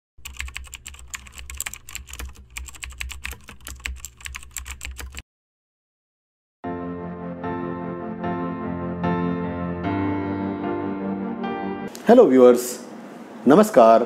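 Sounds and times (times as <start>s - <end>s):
music: 6.6s - 11.9s.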